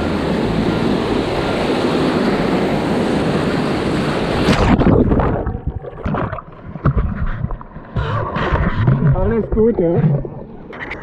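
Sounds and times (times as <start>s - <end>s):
muffled splashing: 4.3s - 11.0s.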